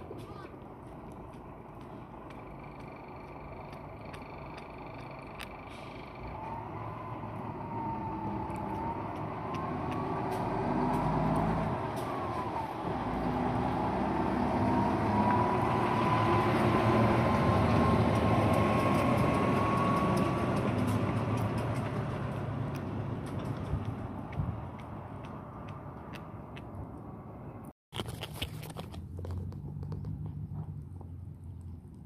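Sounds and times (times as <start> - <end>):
vehicle engine rumbling: 0.0 - 32.0.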